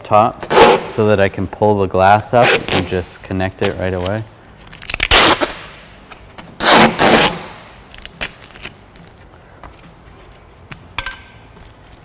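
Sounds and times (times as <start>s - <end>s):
masking tape ripped off roll: 0.4s - 1.0s, 2.4s - 3.0s, 3.6s - 5.8s, 6.4s - 9.2s.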